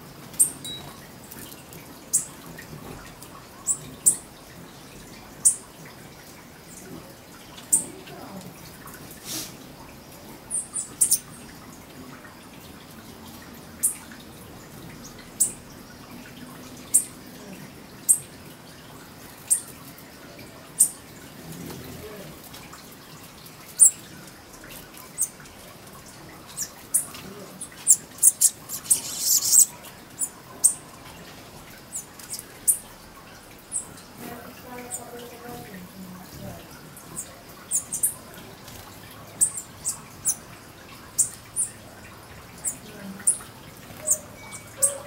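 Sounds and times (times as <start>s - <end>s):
small birds chirping: 0.3s - 1.0s, 2.0s - 2.4s, 3.4s - 6.0s, 6.6s - 8.7s, 10.0s - 11.6s, 16.8s - 18.3s, 19.4s - 19.7s, 20.8s - 21.1s, 23.6s - 24.1s, 25.0s - 25.4s, 26.4s - 30.9s, 34.6s - 45.0s.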